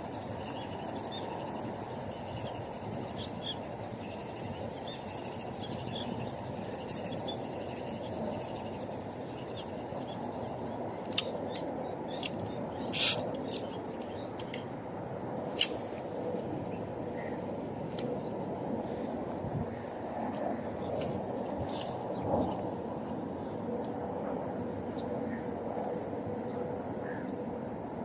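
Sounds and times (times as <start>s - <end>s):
fishing reel clicks and knocks: 11.0s - 11.6s, 12.2s - 14.7s
fishing line hissing off spool: 12.9s - 13.2s.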